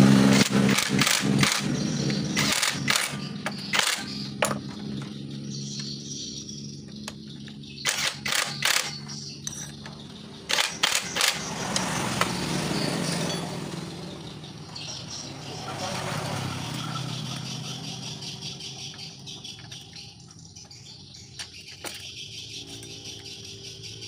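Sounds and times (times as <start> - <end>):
impact wrench bursts: 0.0 - 4.9, 7.8 - 14.4.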